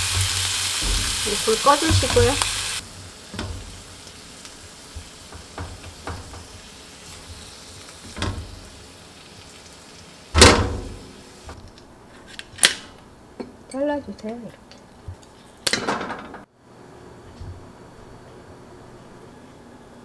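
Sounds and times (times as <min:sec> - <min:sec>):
chopsticks tapping pan and plate: 0:00.0 - 0:02.5
oil sizzling faintly in pan: 0:00.0 - 0:11.8.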